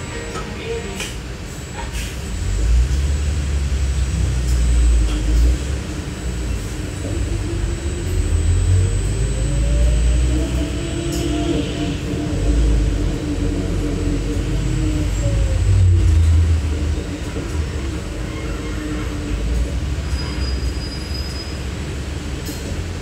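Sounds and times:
trolleybus ride rumble: 0.0s - 23.0s
electric motor whine rising: 2.4s - 16.7s.

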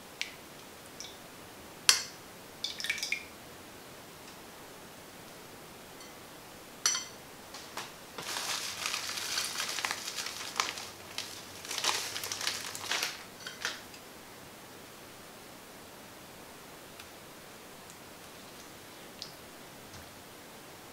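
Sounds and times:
plastic bag crinkling: 8.2s - 13.9s.

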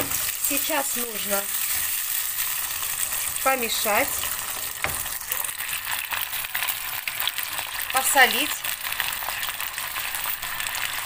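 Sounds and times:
spatula stirring in pan: 0.0s - 7.7s
rice sizzling in frying pan: 0.0s - 11.0s.

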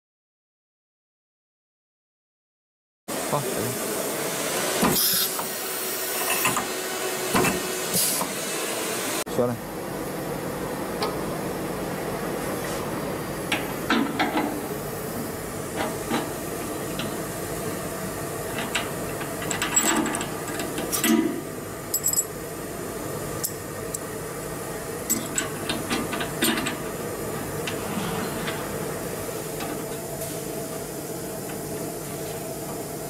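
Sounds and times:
steady background hum: 9.2s - 33.0s
metal clicks and clinks: 21.9s - 22.3s.

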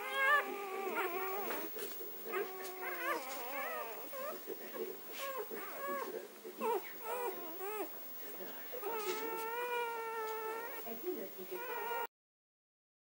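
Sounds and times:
puppies whimpering and squeaking: 0.0s - 4.4s, 5.2s - 7.9s, 8.8s - 10.8s, 11.6s - 12.1s.

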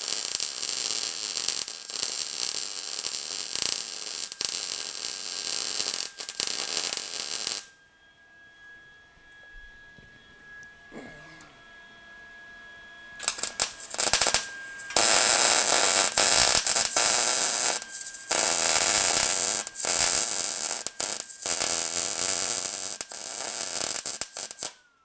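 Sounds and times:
welding arc crackling: 0.0s - 7.7s, 13.2s - 24.8s.

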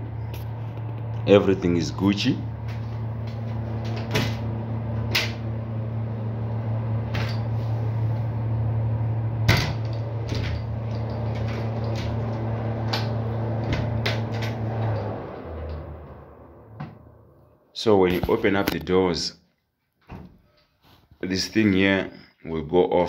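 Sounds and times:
egg incubator humming: 0.0s - 17.7s.

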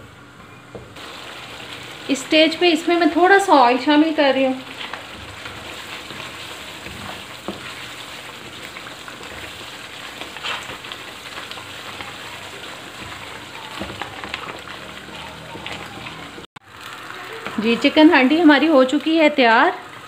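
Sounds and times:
food sizzling in a wok: 0.9s - 20.0s
wooden spatula scraping a pan: 3.0s - 16.5s.

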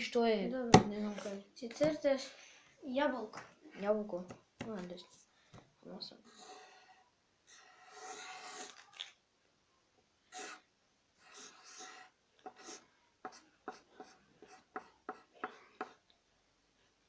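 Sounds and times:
pencil scratching on paper: 6.2s - 8.9s, 10.3s - 10.6s, 11.2s - 16.0s.

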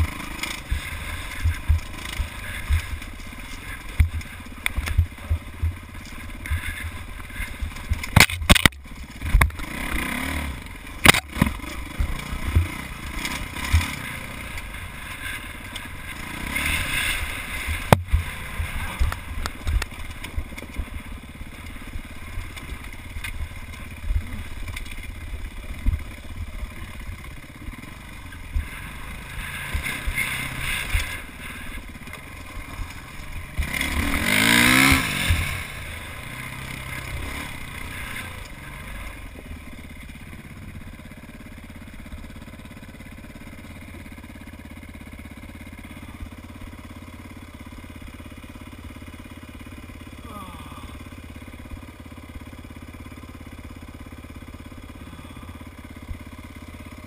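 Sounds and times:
dirt bike engine revving: 0.0s - 47.0s, 47.7s - 57.0s
low buffeting thumps: 1.4s - 8.0s.

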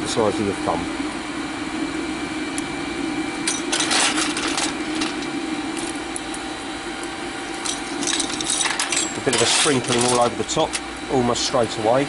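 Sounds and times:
electric blower humming: 0.0s - 12.0s
coal clattering off a shovel: 3.5s - 5.9s, 7.7s - 10.8s.

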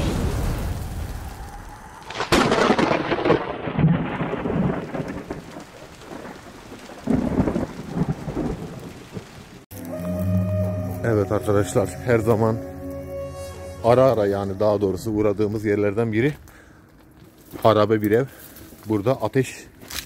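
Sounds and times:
thunderclap rolling into rumbling: 0.0s - 9.6s
rain: 0.0s - 20.0s.

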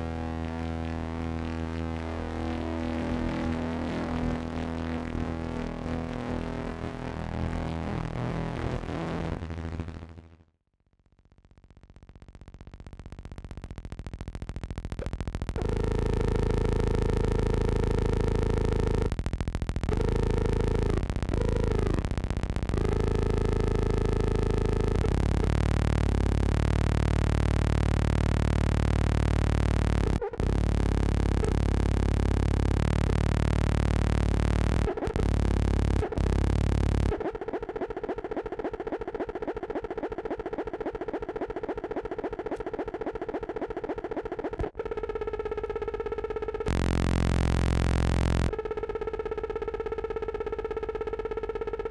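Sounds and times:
droning synthesizer music: 46.4s - 51.9s.

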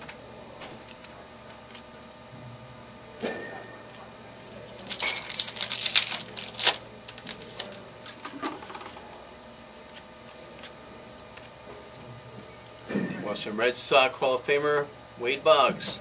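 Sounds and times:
wrapper crackling: 4.5s - 8.3s.

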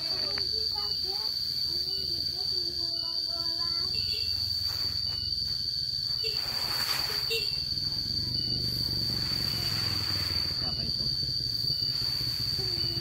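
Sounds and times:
insect buzzing: 0.0s - 13.0s
rake swishing through grain: 6.3s - 7.3s.

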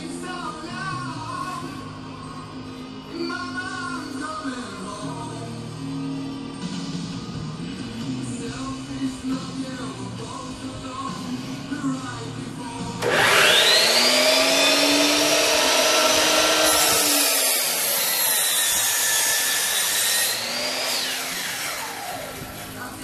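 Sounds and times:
miter saw cutting wood: 13.0s - 23.0s.

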